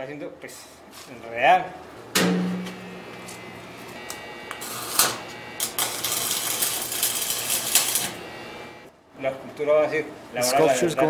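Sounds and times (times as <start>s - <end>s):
welding arc crackling: 2.7s - 8.9s.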